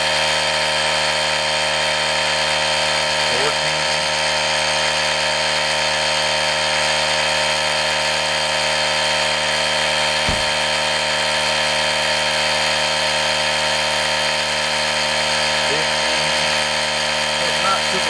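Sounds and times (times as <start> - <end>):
electric air compressor running: 0.0 - 18.0
low thump: 10.2 - 10.6.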